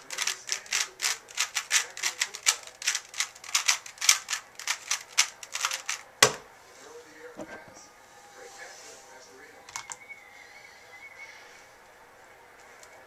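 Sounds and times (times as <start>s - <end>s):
puzzle cube clicking: 0.1s - 6.0s.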